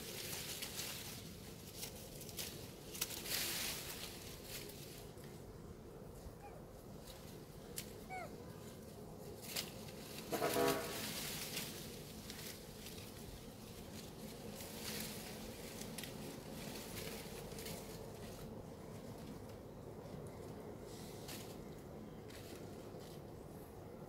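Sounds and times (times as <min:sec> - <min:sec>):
rustling: 0:00.0 - 0:19.4
monkey cry: 0:06.4 - 0:06.6, 0:08.0 - 0:08.5.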